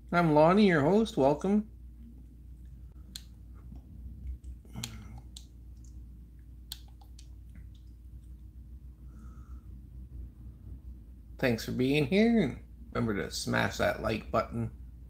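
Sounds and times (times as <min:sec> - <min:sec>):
low steady hum: 0:00.0 - 0:15.0
sharp clicks and light taps: 0:02.6 - 0:08.4.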